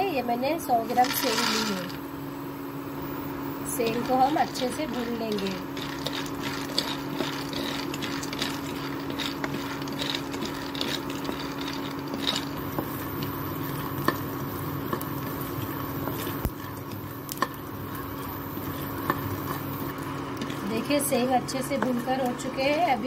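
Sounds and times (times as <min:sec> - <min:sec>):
steady low hum: 0:00.0 - 0:23.0
nuts rattling in a pan: 0:00.9 - 0:02.0, 0:03.8 - 0:16.3.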